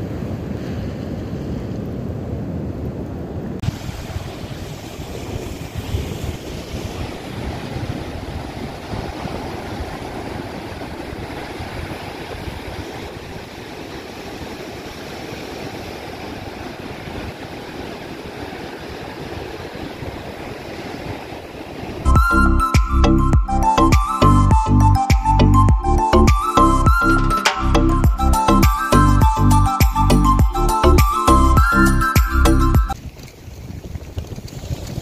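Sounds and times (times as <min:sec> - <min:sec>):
wind buffeting microphone: 0:00.0 - 0:24.6, 0:30.2 - 0:35.0
surf breaking on rocky shore: 0:03.6 - 0:22.1.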